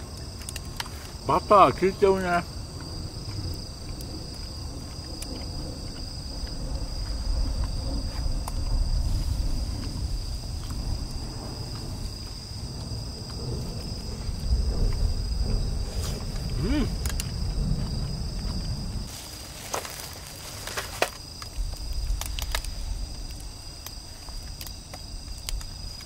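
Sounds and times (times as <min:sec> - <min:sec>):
insects trilling: 0:00.0 - 0:26.0
low rumble: 0:02.4 - 0:19.2.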